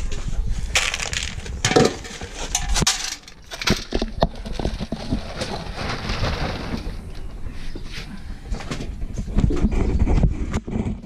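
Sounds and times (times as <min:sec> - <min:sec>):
feed pellets pattering into tubs: 0:00.6 - 0:07.3
steel bowl clinking on plastic tubs: 0:00.8 - 0:05.7.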